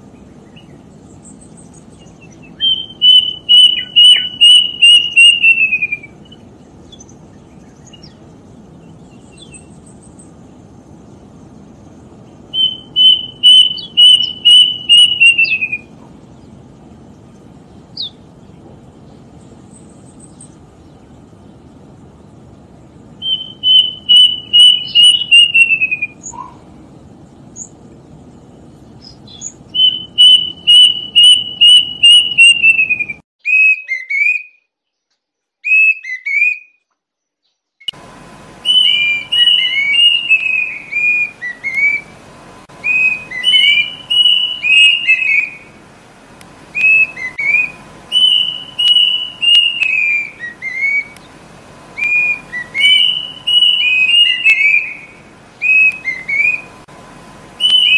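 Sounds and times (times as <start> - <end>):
faint steady hum: 0.0 - 33.2, 37.9 - 57.9
cuckoo whistled notes: 2.6 - 6.2, 12.5 - 15.9, 23.2 - 26.6, 29.8 - 34.6, 38.6 - 42.1, 42.8 - 45.7, 46.7 - 51.2, 51.9 - 56.7, 57.6 - 57.9.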